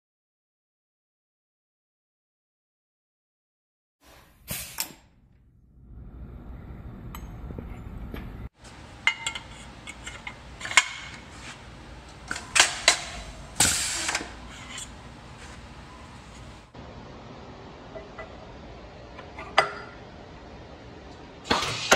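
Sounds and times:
metal part clinking: 8.9s - 11.2s.

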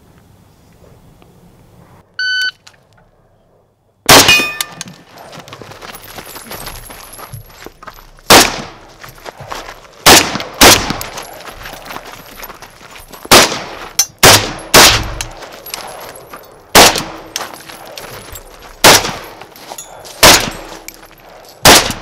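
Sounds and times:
shot timer beep: 2.2s - 2.6s
rifle shots: 4.1s - 4.8s, 8.3s - 8.8s, 10.0s - 11.2s, 13.3s - 15.4s, 16.7s - 17.4s, 18.8s - 19.5s, 20.2s - 20.9s, 21.6s - 22.0s.

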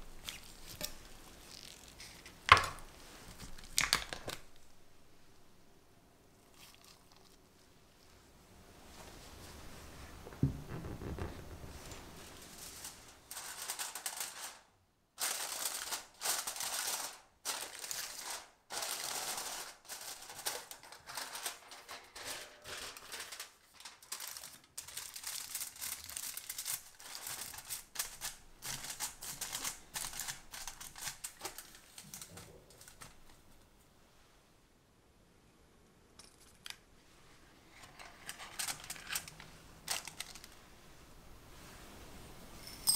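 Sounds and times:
aluminium foil crinkling: 0.0s - 4.7s, 11.9s - 33.5s, 37.9s - 40.7s
soft knock: 10.3s - 10.9s.

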